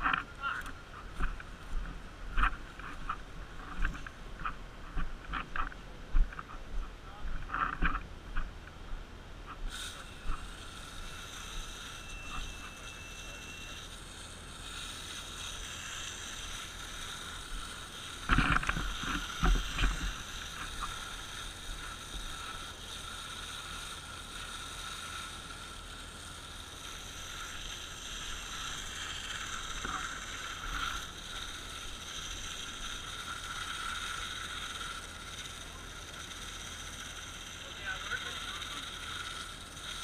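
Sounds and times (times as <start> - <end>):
hose spraying water hiss: 9.7 - 40.0.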